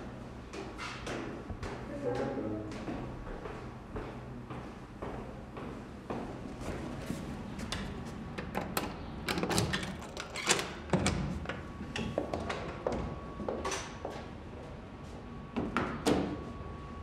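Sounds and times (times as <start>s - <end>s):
door opening: 7.7s - 11.3s.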